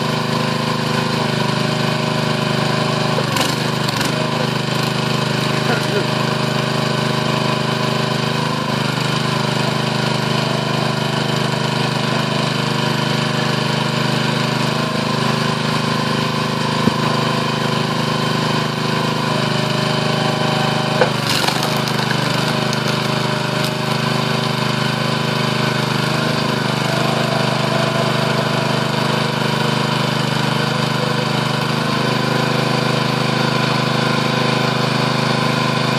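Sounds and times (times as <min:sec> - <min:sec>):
small gasoline engine running: 0:00.0 - 0:35.9
log cracking as it splits: 0:21.0 - 0:24.1.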